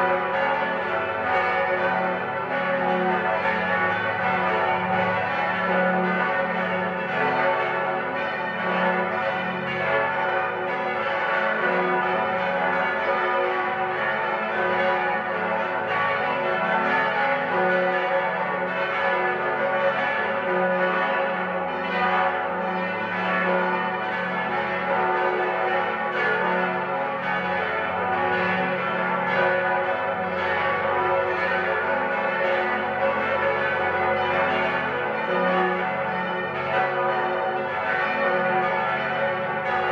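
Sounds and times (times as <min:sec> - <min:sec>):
church bells ringing in full peal: 0:00.0 - 0:39.9.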